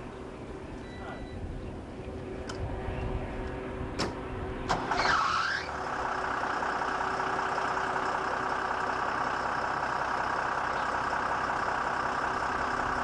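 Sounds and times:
combine harvester running: 0.0 - 13.0.

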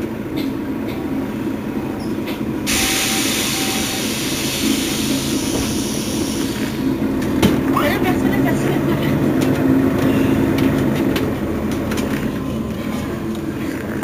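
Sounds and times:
bus engine idling: 0.0 - 14.0
loud even hiss: 2.7 - 7.0.

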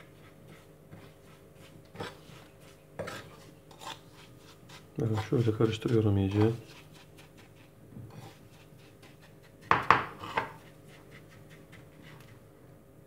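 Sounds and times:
spoon scraping ceramic plate: 3.0 - 7.4, 8.1 - 12.3.

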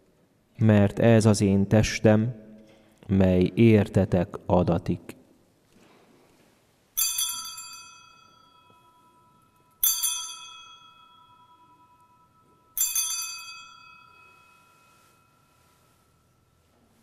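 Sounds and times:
altar bell ringing: 7.0 - 17.0.

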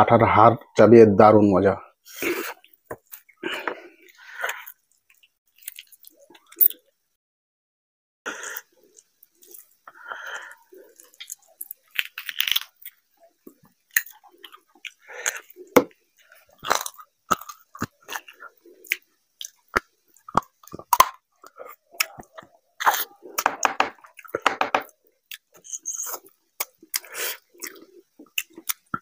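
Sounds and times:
chewing: 2.5 - 6.8, 8.5 - 23.4, 25.3 - 29.0.

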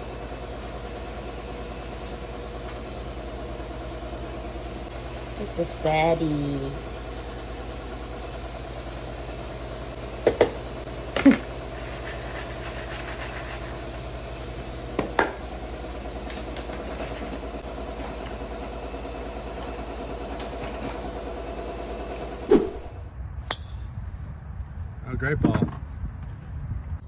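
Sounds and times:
steady low hum: 0.0 - 25.2.

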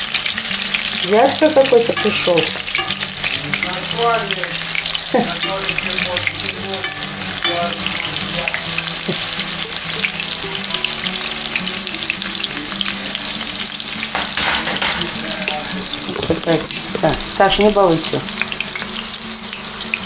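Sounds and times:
fritters sizzling in hot oil: 0.0 - 20.0
forks touching a pan: 14.2 - 15.2.

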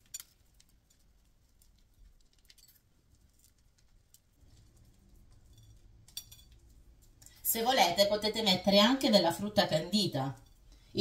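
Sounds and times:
sprinkles ticking on plate: 0.0 - 7.4.

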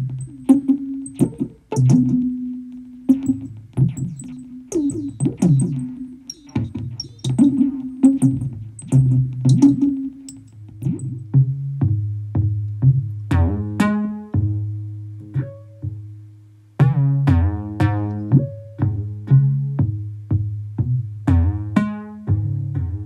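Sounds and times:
synthesizer plucked notes: 0.0 - 12.6, 16.8 - 20.0
low held bass tone: 0.0 - 16.2, 16.8 - 23.0.

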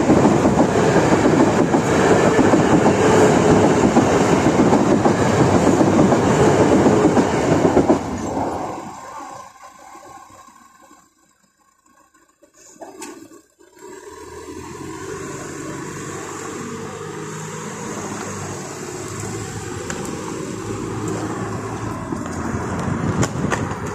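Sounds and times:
road traffic moving off: 0.0 - 23.9.

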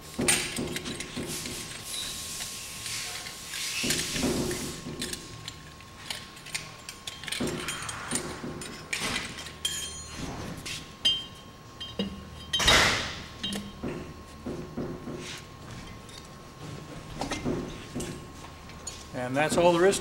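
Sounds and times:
metal clinks and clicks: 5.0 - 10.1.

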